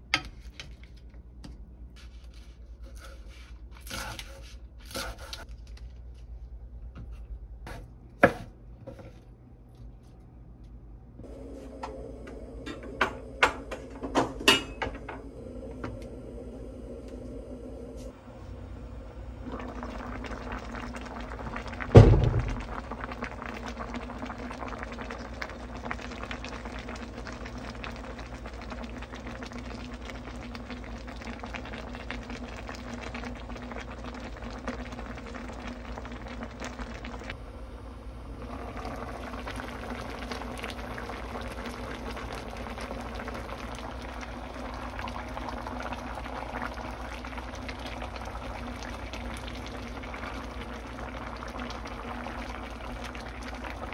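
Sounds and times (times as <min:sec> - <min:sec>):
broth bubbling in pot: 0:18.4 - 0:53.9
loud low thump: 0:21.9 - 0:22.7.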